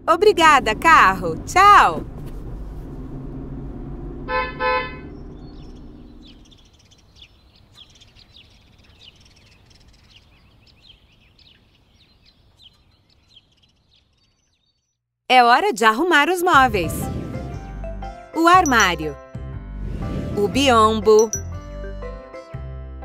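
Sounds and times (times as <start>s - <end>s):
car engine hum: 0.0s - 6.8s
cartoon car honking: 4.3s - 5.1s
birds chirping: 4.9s - 14.9s.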